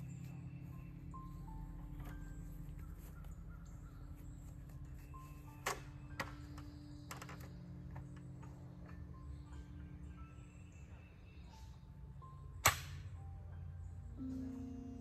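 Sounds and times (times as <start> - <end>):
bird chirps: 0.0 - 15.0
steady low hum: 0.0 - 15.0.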